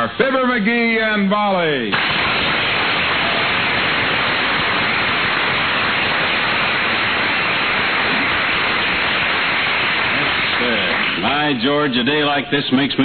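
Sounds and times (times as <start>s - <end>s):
audience applauding: 2.0s - 11.9s.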